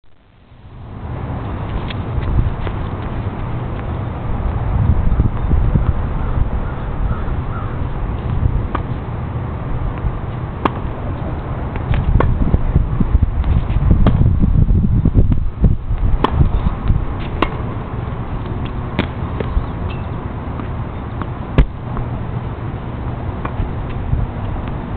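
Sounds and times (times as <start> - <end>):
low rumble: 0.1 - 24.9
racket hitting tennis ball: 8.1 - 9.1, 9.9 - 12.7, 13.4 - 14.3, 15.3 - 24.9
tennis ball bouncing: 8.1 - 9.1, 9.9 - 12.7, 13.4 - 14.3, 15.2 - 24.9.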